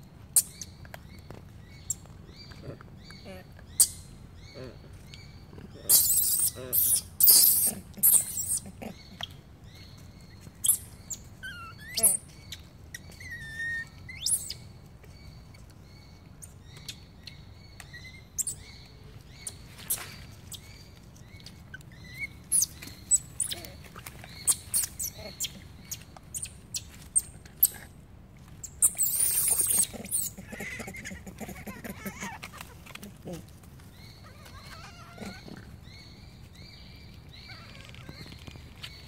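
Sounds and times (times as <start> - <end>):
monkey chirps: 5.8 - 9.4, 10.6 - 14.7, 16.4 - 18.7, 21.5 - 27.9, 28.6 - 33.5, 34.1 - 35.8
monkey squealing: 5.9 - 8.9, 13.2 - 14.5, 28.8 - 33.1, 34.2 - 35.7
rustling in dry leaves: 19.1 - 27.8, 28.4 - 35.8.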